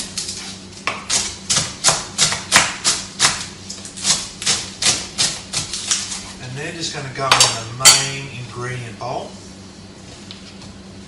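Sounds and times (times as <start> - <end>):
knife chopping on cutting board: 0.8 - 6.3.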